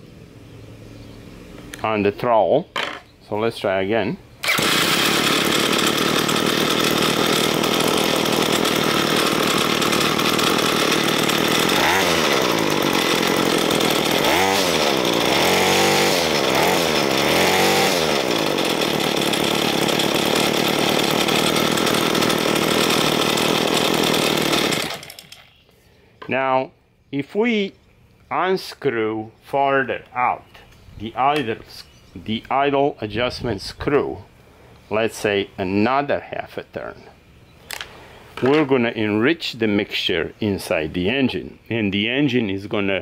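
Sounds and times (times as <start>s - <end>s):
small two-stroke engine running: 4.4s - 25.6s.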